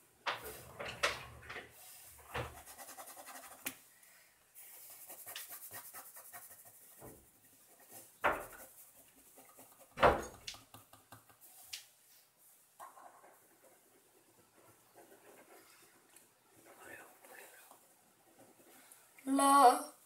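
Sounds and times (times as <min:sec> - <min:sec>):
pen scratching on paper: 0:02.4 - 0:03.7, 0:04.7 - 0:10.2, 0:12.8 - 0:17.4.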